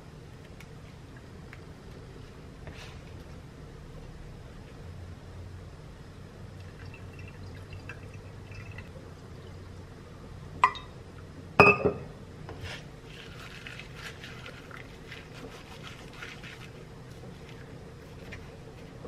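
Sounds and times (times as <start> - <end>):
water trickling onto ceramic: 6.5 - 9.9, 13.1 - 19.0.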